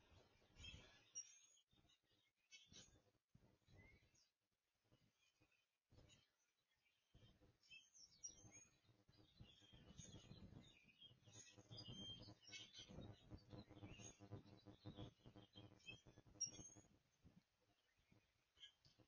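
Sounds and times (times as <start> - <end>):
faint birds chirping: 0.0 - 19.0.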